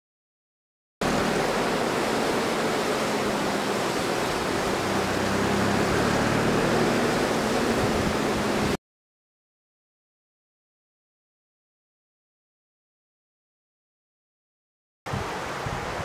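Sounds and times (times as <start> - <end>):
river rushing over rapids: 1.0 - 8.8, 15.1 - 16.0.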